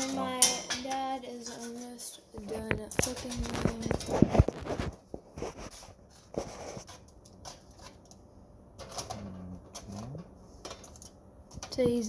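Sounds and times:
foil rustling: 0:01.5 - 0:08.0.

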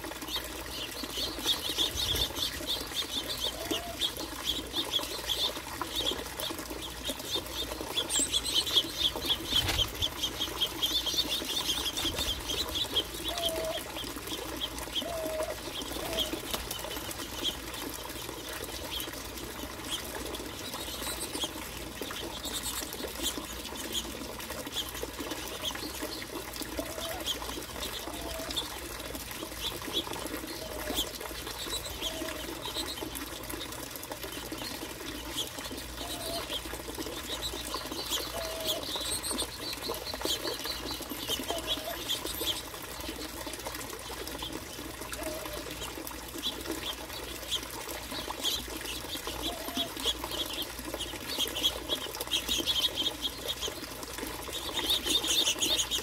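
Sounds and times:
wing flutters: 0:05.0 - 0:17.8
finches chirping: 0:37.2 - 0:43.1.

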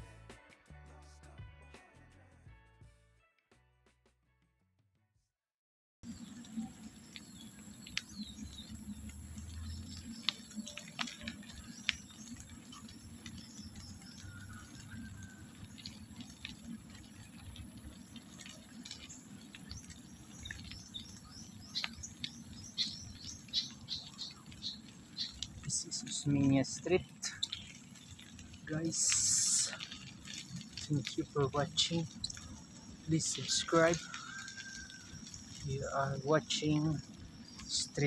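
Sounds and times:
bicycle rolling rumble: 0:06.0 - 0:38.0
birds chirping: 0:06.0 - 0:38.0.

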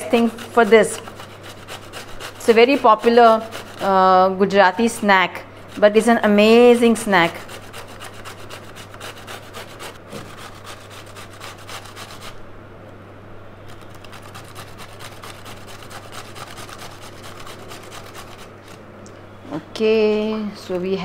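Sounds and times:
gourd grated on metal grater: 0:00.0 - 0:04.0, 0:05.7 - 0:12.4, 0:13.7 - 0:18.8.

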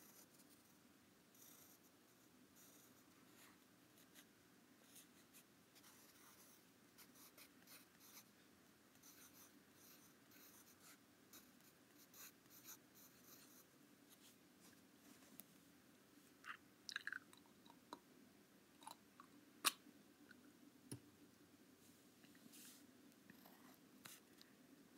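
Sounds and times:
pencil scratching on paper: 0:01.4 - 0:01.9, 0:04.9 - 0:08.3, 0:09.0 - 0:13.7.

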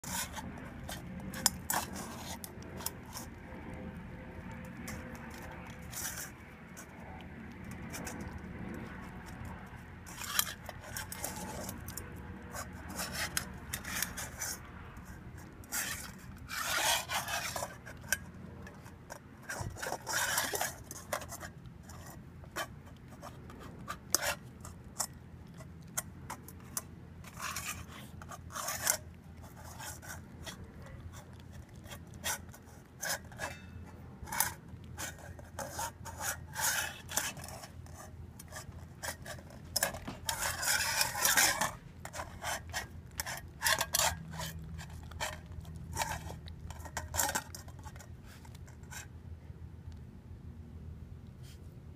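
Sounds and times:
scraping on metal bowl: 0:00.0 - 0:49.2.

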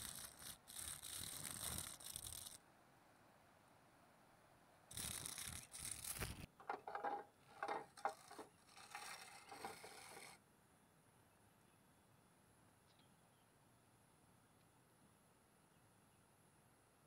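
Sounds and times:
plastic scraping on plastic: 0:04.9 - 0:10.4.

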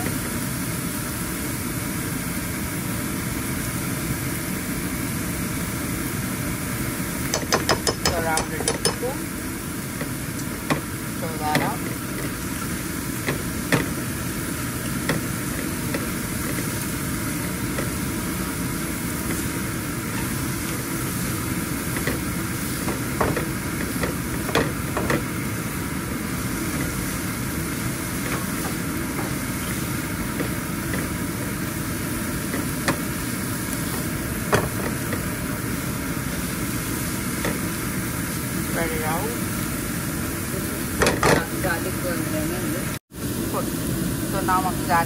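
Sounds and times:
food cooking in oil: 0:00.0 - 0:45.0
kitchen exhaust fan hum: 0:00.0 - 0:45.0.

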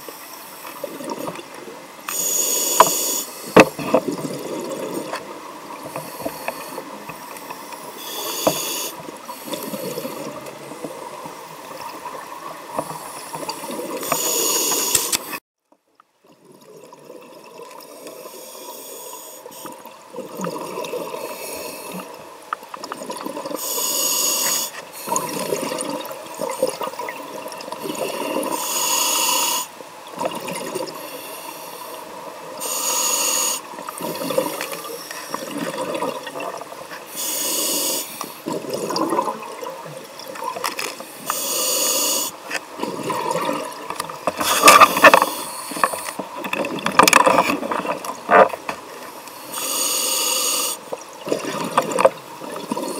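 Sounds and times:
muffled underwater hiss: 0:00.0 - 0:15.4, 0:17.7 - 0:22.4, 0:23.4 - 0:52.9
exhaled air bubbling: 0:25.0 - 0:28.6, 0:33.8 - 0:37.0, 0:37.7 - 0:40.8, 0:42.7 - 0:48.5.

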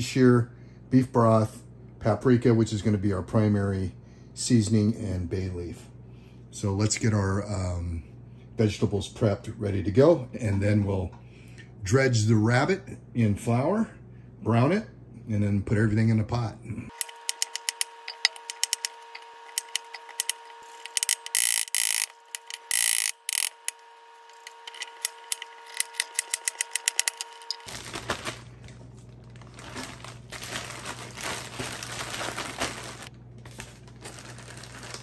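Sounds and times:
plastic bag rustling: 0:27.1 - 0:35.0.

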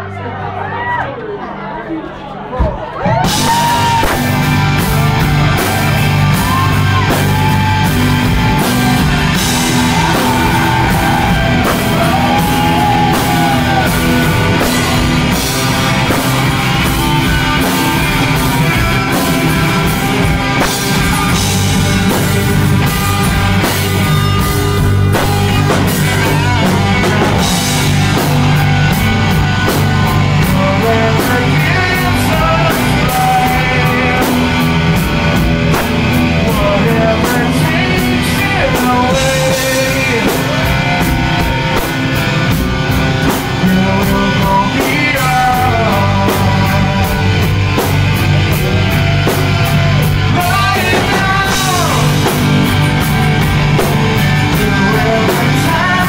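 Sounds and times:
rock band playing loud: 0:02.6 - 0:56.0
lead guitar bending pitch: 0:47.1 - 0:56.0.

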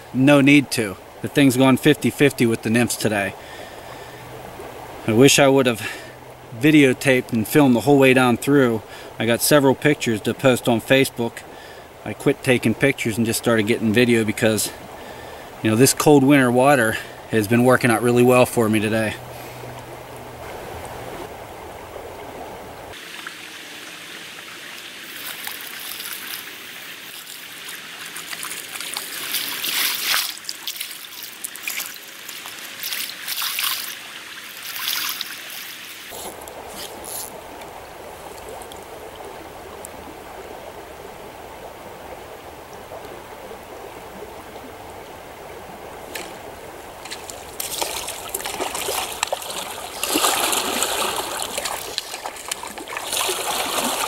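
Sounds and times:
water splashing: 0:00.0 - 0:41.0, 0:42.7 - 0:54.0
stream water trickling: 0:00.0 - 0:54.0.

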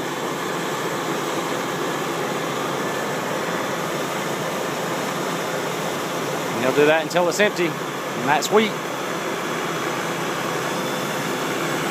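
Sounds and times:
combine harvester running: 0:00.0 - 0:11.9.

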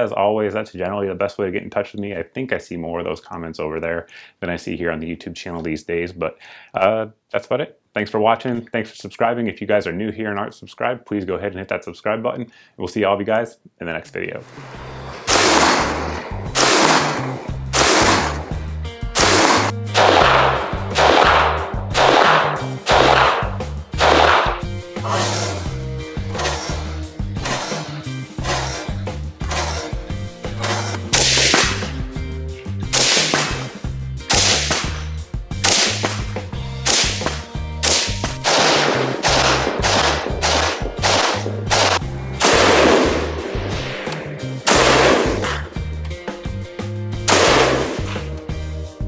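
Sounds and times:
background music with bass line: 0:14.8 - 0:49.0
rifle shots with ringing tail: 0:15.3 - 0:18.5, 0:19.2 - 0:24.6, 0:37.9 - 0:43.4, 0:44.7 - 0:45.5, 0:47.3 - 0:48.0.

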